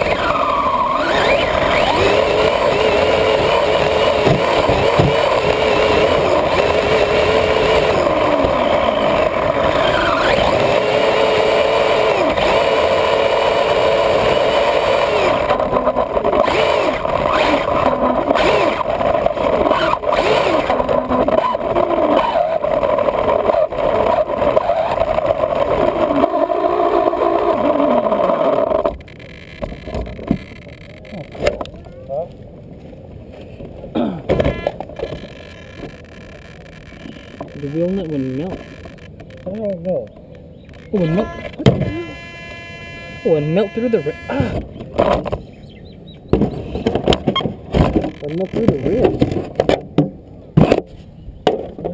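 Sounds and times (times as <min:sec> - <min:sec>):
rc car motor whining: 0:00.0 - 0:31.3, 0:34.4 - 0:39.6, 0:40.6 - 0:44.8.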